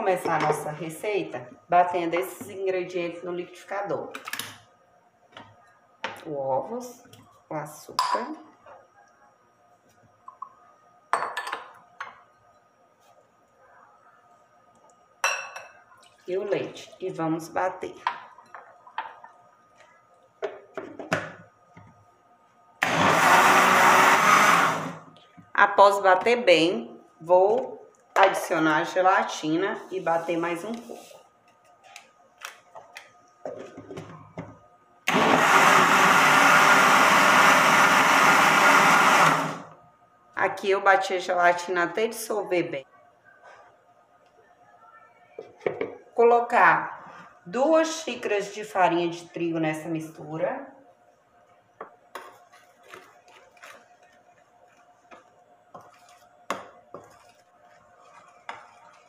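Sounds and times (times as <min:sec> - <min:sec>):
electric blender running: 0:22.8 - 0:25.1, 0:35.1 - 0:39.7.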